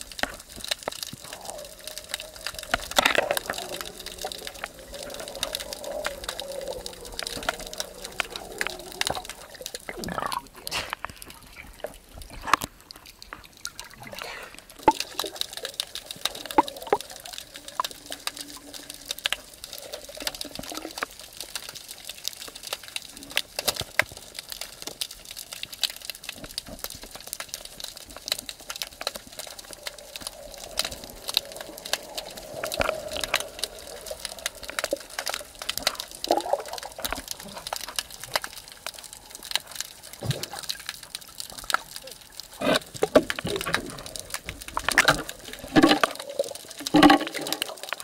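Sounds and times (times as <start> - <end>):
underwater water hiss: 0.0 - 10.0, 28.2 - 41.1
sharp clicks and crackles: 0.0 - 48.0.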